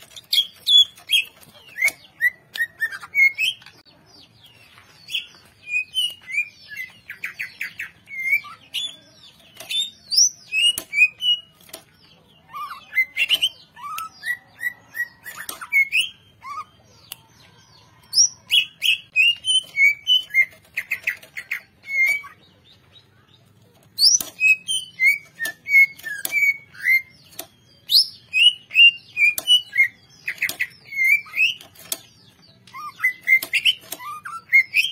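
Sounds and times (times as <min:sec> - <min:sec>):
bird singing whistled notes: 0:05.2 - 0:11.6, 0:24.0 - 0:32.0, 0:32.6 - 0:34.9.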